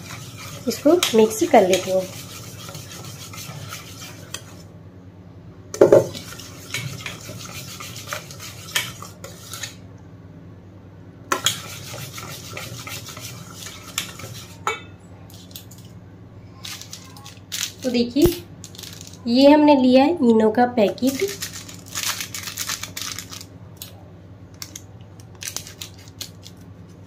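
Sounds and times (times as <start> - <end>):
whisk clicking against metal bowl: 0.0 - 4.5.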